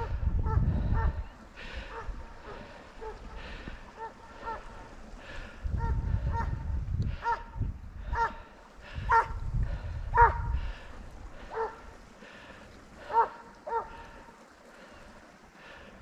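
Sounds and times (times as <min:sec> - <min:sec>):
wind rumbling on microphone: 0:00.0 - 0:14.2
hound baying: 0:09.1 - 0:09.4, 0:10.1 - 0:10.5, 0:11.5 - 0:11.8, 0:13.1 - 0:13.9.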